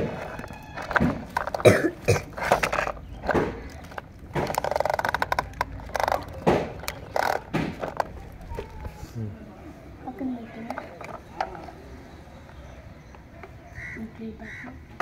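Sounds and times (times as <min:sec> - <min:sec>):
rattling gear clicks: 0:00.0 - 0:08.9
toy rolling on concrete floor: 0:00.0 - 0:09.0, 0:10.0 - 0:13.8.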